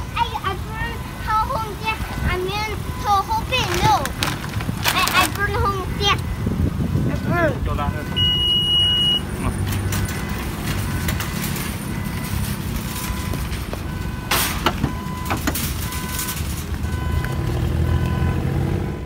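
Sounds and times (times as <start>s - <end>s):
electronic warning beep: 8.0s - 9.3s.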